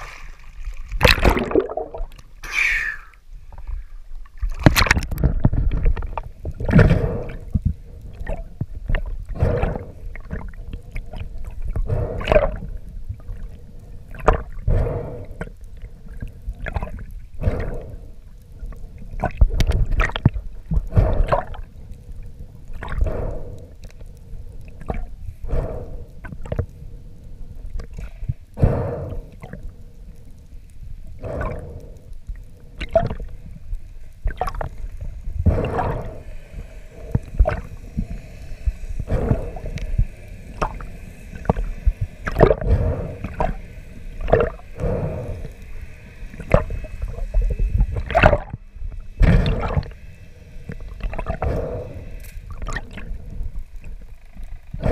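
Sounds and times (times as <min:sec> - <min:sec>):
water rushing underwater: 0:00.0 - 0:24.0, 0:30.8 - 0:54.9
faint steady hum: 0:00.0 - 0:54.9
high whine: 0:33.9 - 0:54.9.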